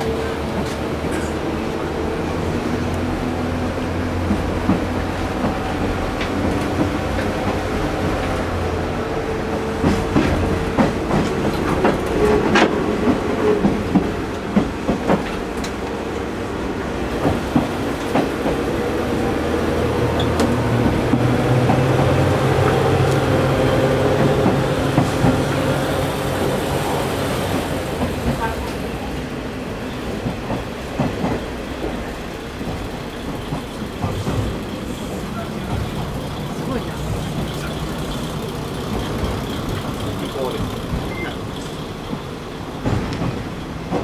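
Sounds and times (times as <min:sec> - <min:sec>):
train wheels clicking over rail joints: 0:09.8 - 0:16.0, 0:17.1 - 0:18.8, 0:19.5 - 0:28.8, 0:30.1 - 0:44.0
diesel engine humming: 0:31.6 - 0:42.9.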